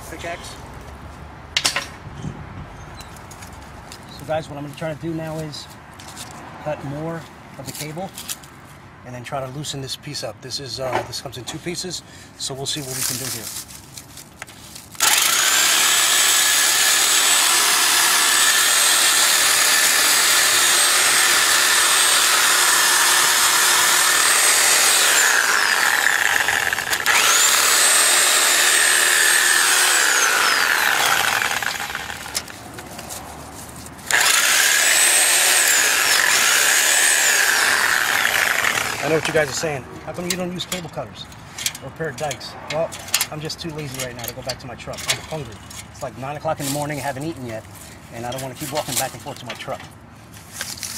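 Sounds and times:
reciprocating saw cutting steel cable: 15.0 - 32.6, 34.0 - 39.7.

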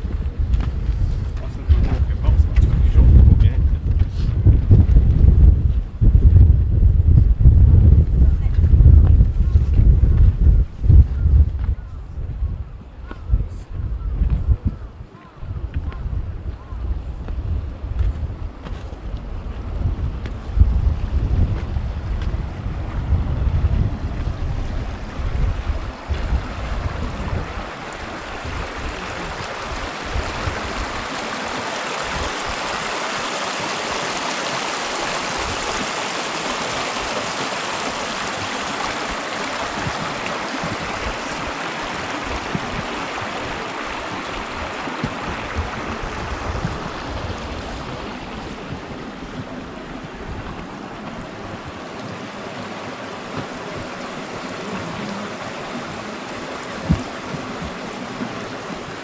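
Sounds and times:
water rushing over rocks: 18.5 - 59.0.

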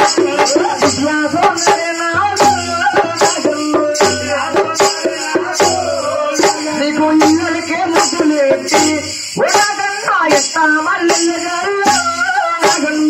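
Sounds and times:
man singing through microphone: 0.0 - 13.0.

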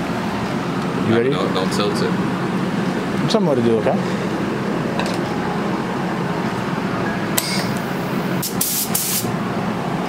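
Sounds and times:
steady low hum: 0.0 - 10.0
spray gun hissing blasts: 8.3 - 9.3.

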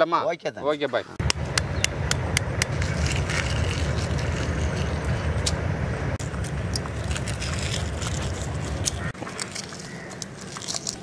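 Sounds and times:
low rumble: 1.2 - 9.2
egg shells cracking: 2.3 - 5.6, 6.2 - 11.0.

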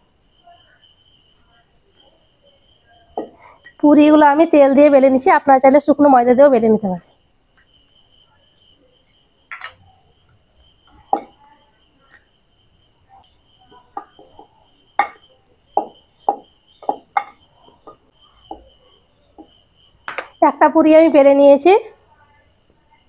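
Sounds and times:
crickets chirring: 0.0 - 23.0
rolling pin tapping on board: 15.8 - 18.7.

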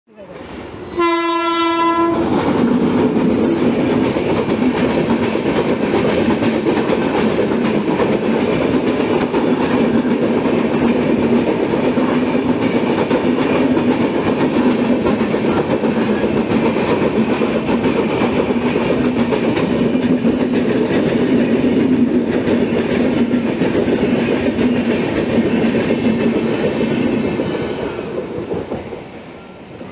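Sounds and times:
train wheels rumbling on rails: 0.2 - 29.9
locomotive horn blast: 1.0 - 2.2.

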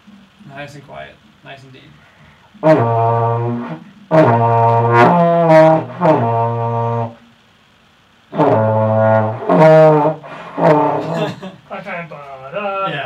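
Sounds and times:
trombone held notes: 2.5 - 7.3, 8.3 - 11.3.

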